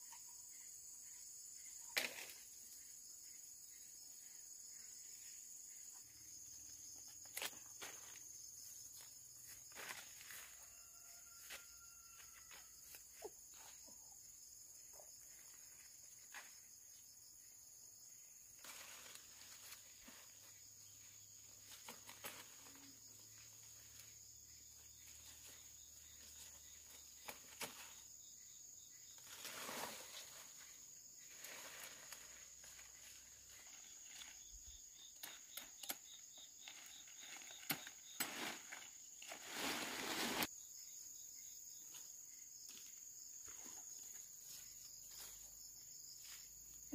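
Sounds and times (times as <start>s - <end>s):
high insect drone: 0.0s - 46.9s
dry grass rustling and crackling: 36.7s - 40.5s.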